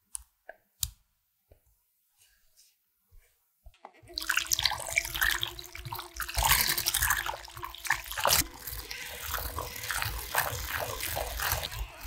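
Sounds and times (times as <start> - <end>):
hand mixer motor whining: 4.0 - 12.0
beaters splashing through cream: 4.1 - 12.0.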